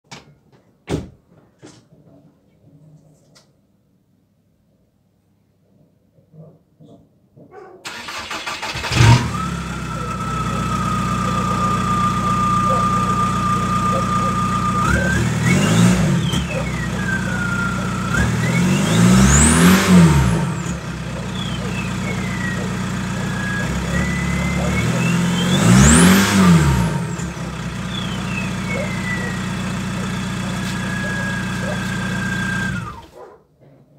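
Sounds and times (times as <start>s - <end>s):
diesel engine cranking: 7.9s - 33.1s
diesel engine idling and revving: 7.9s - 33.1s
turbo whistle: 11.3s - 20.6s, 21.2s - 29.7s, 30.5s - 31.8s
exhaust bang: 14.6s - 33.0s.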